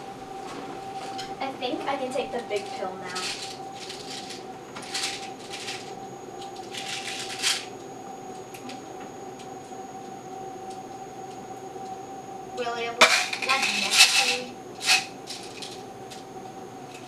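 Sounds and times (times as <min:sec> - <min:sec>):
faint steady whine: 0:00.0 - 0:17.0.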